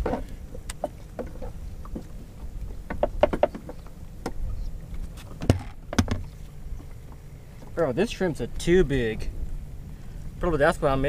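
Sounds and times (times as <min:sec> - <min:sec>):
wind rumble on microphone: 0:00.0 - 0:07.1
fishing gear clicks and knocks: 0:02.8 - 0:07.8.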